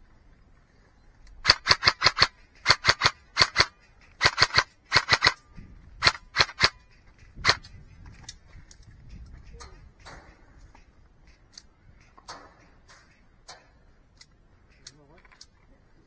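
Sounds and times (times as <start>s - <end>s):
airsoft gun shots: 1.4s - 5.4s, 6.0s - 6.8s.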